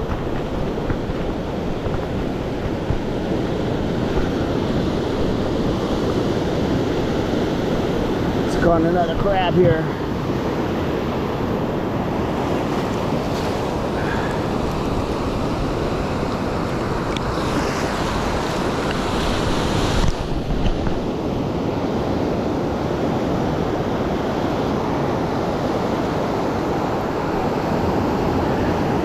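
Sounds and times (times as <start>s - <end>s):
ocean surf breaking: 0.0s - 29.0s
wind buffeting microphone: 0.0s - 29.0s.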